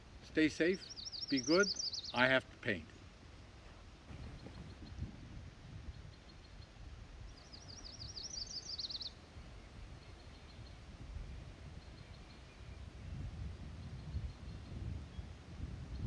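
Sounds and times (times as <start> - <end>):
songbird trilling: 0.7 - 2.3, 7.3 - 9.2.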